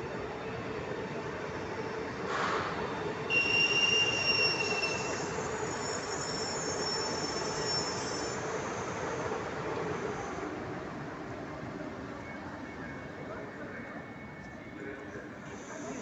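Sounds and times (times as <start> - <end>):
train running gear squealing: 3.3 - 9.2.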